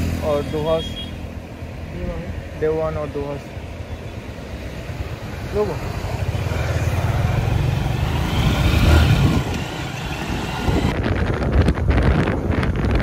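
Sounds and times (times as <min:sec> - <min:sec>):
wind buffeting microphone: 0:06.1 - 0:13.0.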